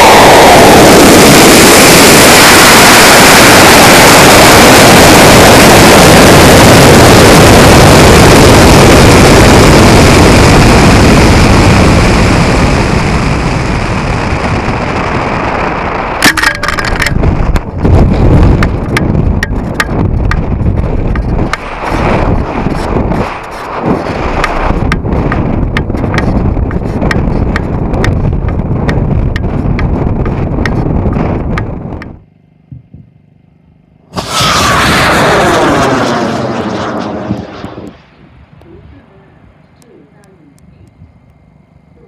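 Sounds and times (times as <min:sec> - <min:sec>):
air rushing past: 0:00.0 - 0:08.5, 0:17.0 - 0:27.6, 0:34.1 - 0:39.5
buffeting wind gusts: 0:00.0 - 0:32.2, 0:34.2 - 0:39.6
rocket motor roar: 0:00.0 - 0:42.0.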